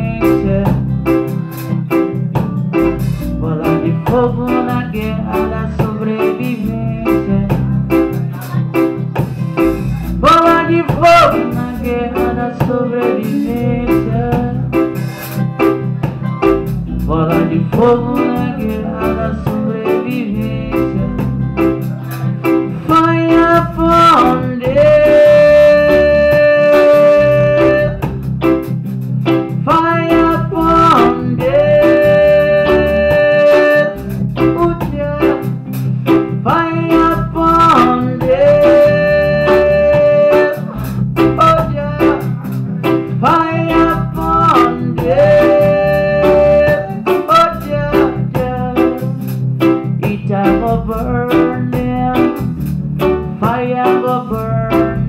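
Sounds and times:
lead melody with held notes: 0:00.0 - 0:55.0
live band playing: 0:00.0 - 0:55.0.

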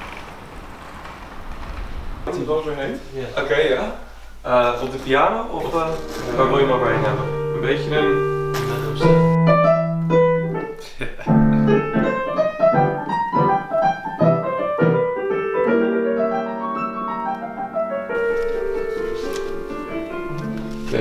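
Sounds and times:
piano chords and melody: 0:05.5 - 0:21.0.

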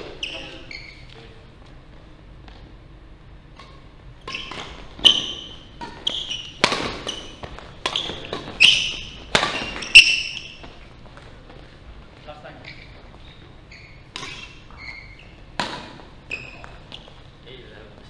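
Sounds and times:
racket hitting shuttlecock: 0:03.6 - 0:10.8, 0:14.1 - 0:14.7, 0:15.5 - 0:16.1.

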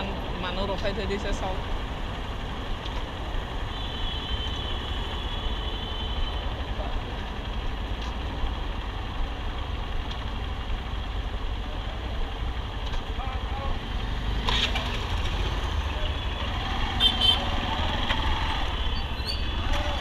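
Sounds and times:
motorcycle engine idling: 0:04.8 - 0:20.0.

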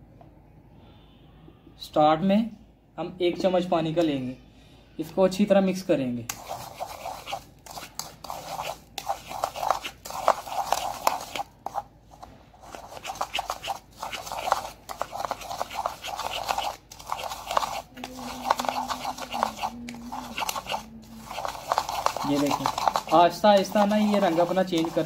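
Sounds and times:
spoon scraping plastic bowl: 0:06.3 - 0:11.8, 0:12.6 - 0:25.0.

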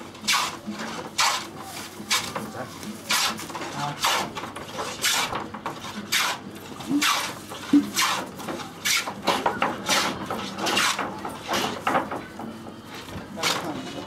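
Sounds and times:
hand tool scraping wooden plank: 0:00.2 - 0:01.5, 0:03.1 - 0:11.9.

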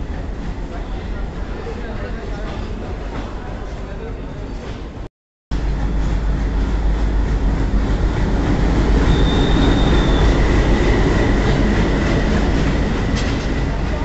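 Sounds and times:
diesel locomotive rumbling past: 0:05.5 - 0:14.0.

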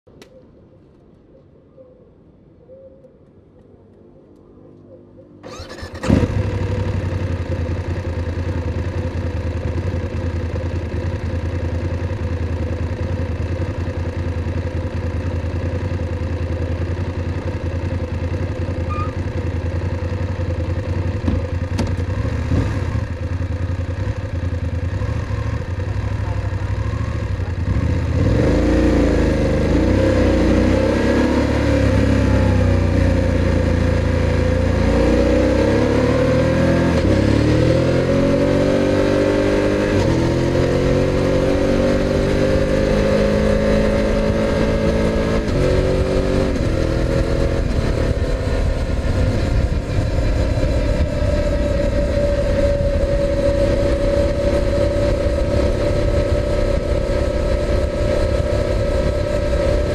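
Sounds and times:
motorcycle engine idling and revving: 0:03.6 - 0:59.9
motorcycle starter cranking: 0:05.4 - 0:06.6.

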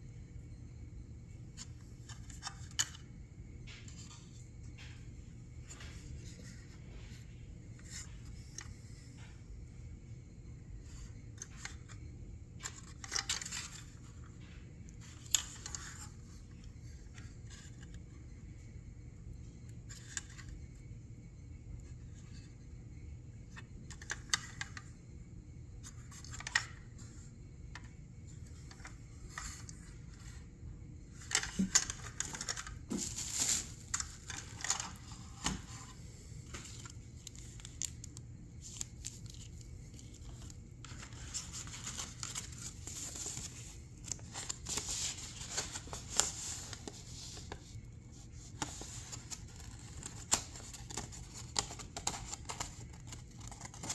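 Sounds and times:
paper and plastic rustling: 0:31.2 - 0:53.9.

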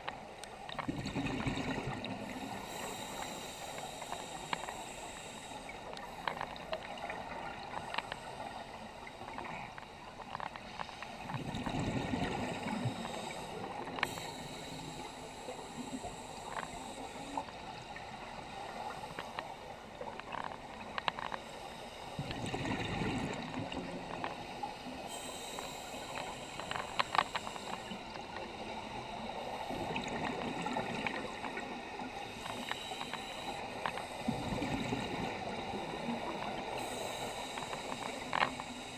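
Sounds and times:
exhaled bubbles underwater: 0:00.9 - 0:02.4, 0:11.2 - 0:13.9, 0:22.2 - 0:24.1, 0:34.2 - 0:37.0
steady hiss: 0:01.9 - 0:38.9
small clicks: 0:02.6 - 0:08.5, 0:18.9 - 0:21.6, 0:25.1 - 0:28.5, 0:32.2 - 0:34.2, 0:36.3 - 0:38.9.

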